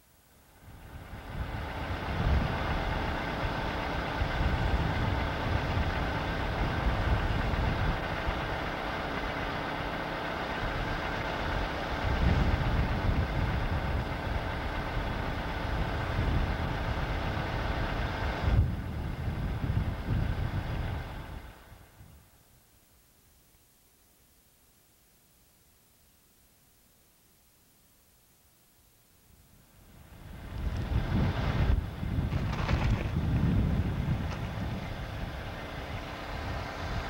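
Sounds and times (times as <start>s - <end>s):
low rumble: 29.8s - 37.0s.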